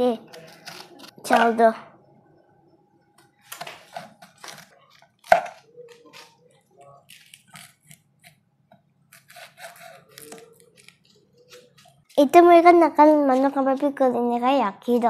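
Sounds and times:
knife cutting on wooden board: 9.1 - 12.0.

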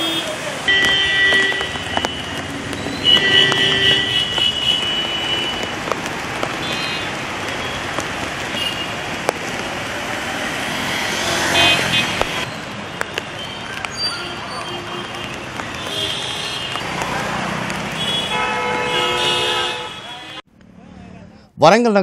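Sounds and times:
vehicle horn: 0.0 - 2.3, 3.0 - 5.5, 11.3 - 12.2, 18.0 - 20.4
vehicles driving through water: 0.0 - 20.3.

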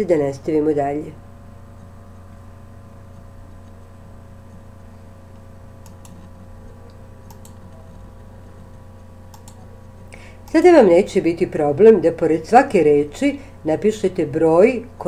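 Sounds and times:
low electrical hum: 0.0 - 15.0
computer mouse clicking: 1.7 - 10.1.

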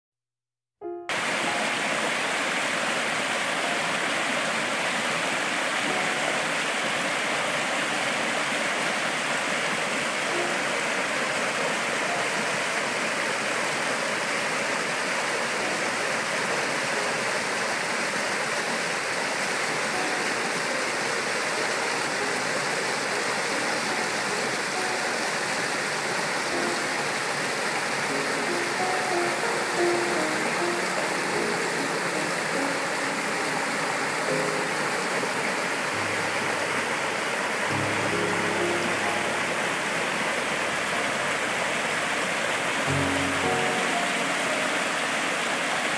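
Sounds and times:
stream rushing over rocks: 1.1 - 45.9.

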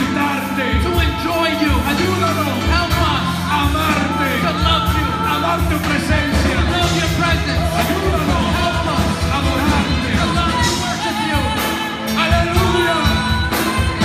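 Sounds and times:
keyboard playing chords: 0.0 - 14.0
voices singing through microphones: 0.0 - 14.0.

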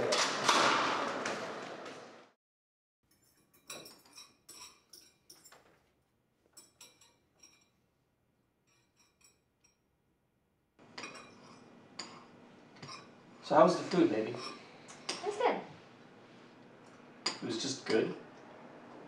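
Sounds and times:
spoons clinking against bowls: 3.1 - 5.8, 6.5 - 7.8, 8.6 - 9.8, 10.8 - 13.1, 17.2 - 18.0.

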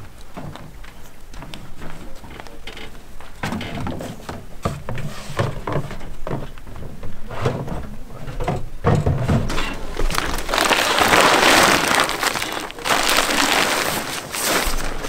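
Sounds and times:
plastic sheeting rustling: 9.5 - 15.0.

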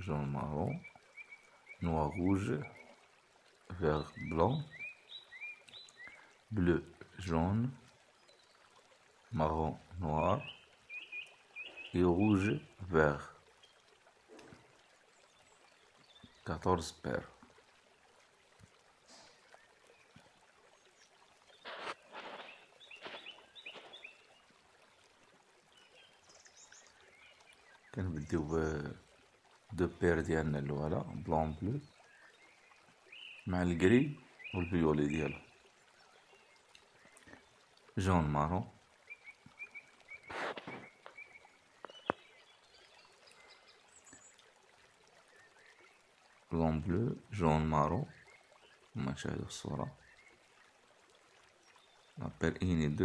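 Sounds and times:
small birds chirping: 0.0 - 17.3, 19.0 - 29.0, 29.7 - 50.8
faint rustling of wires: 21.4 - 24.5, 40.2 - 42.3
wires rustling: 21.6 - 23.9
bird chirps: 21.6 - 24.3, 39.1 - 44.4.

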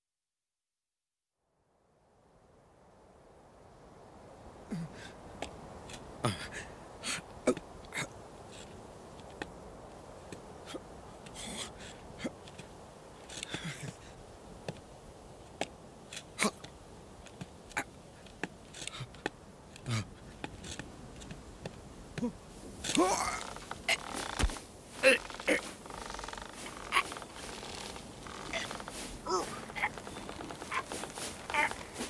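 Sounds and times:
faint outdoor ambience: 1.4 - 32.0
soft rustles: 4.5 - 32.0.

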